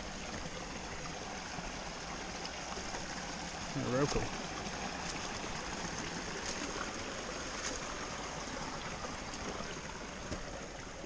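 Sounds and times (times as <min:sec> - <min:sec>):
stream running over rocks: 0:00.0 - 0:11.0.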